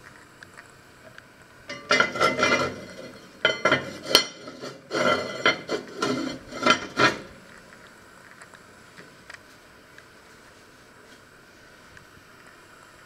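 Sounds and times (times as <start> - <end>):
pot lid scraping and clanking: 1.7 - 7.4.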